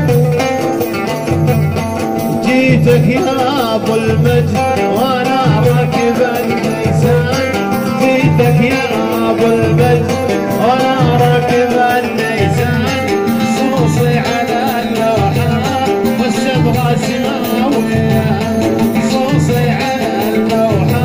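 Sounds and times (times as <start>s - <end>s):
oud melody: 0.0s - 21.0s.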